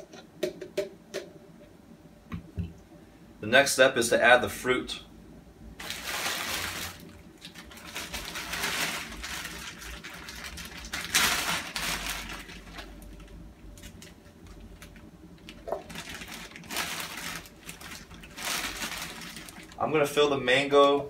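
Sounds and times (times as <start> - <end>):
plastic bag rustling: 5.8 - 21.0.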